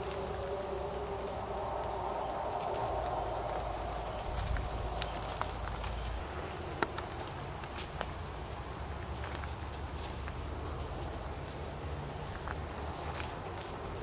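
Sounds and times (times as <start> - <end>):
wind rumble on microphone: 0.0 - 9.0
crickets trilling: 0.0 - 14.0.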